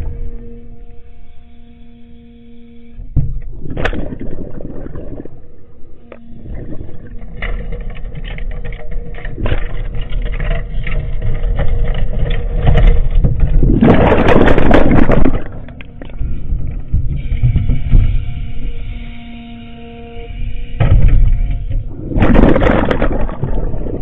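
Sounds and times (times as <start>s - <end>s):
excavator rumbling: 3.1s - 20.0s, 20.7s - 24.0s
knocks and clanks: 20.8s - 23.3s.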